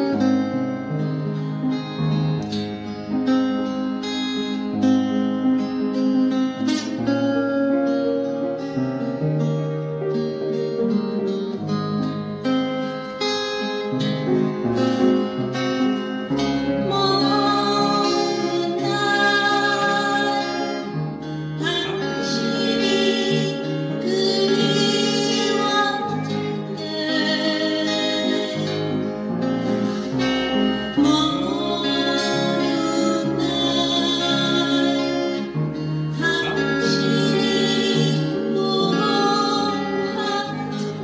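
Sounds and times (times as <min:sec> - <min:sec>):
acoustic guitar: 0:00.0 - 0:41.0
person singing: 0:16.3 - 0:41.0.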